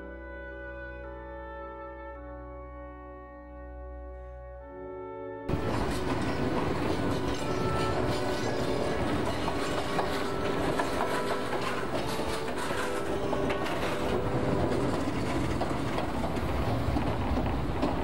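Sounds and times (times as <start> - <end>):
train rumble: 5.5 - 18.0
wheels clicking over rail joints: 5.5 - 18.0.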